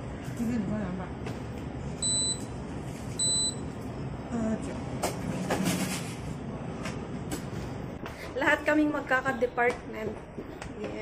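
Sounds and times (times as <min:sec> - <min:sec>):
card reader beeps: 0:02.0 - 0:02.5, 0:03.2 - 0:03.7.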